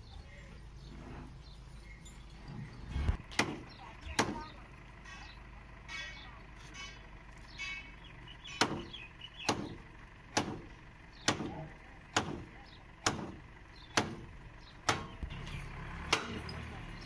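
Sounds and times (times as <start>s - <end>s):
hammer striking wooden beams: 3.3s - 4.4s, 8.6s - 15.2s.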